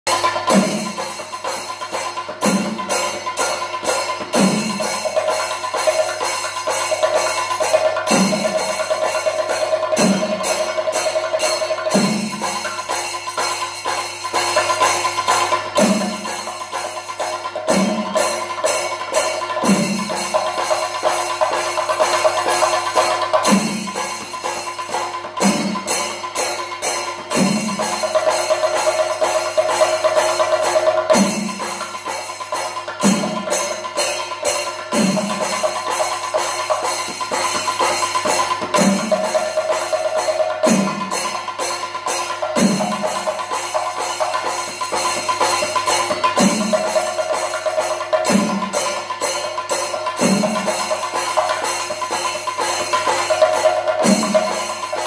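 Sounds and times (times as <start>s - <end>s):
cymbals ringing: 0.1s - 55.0s.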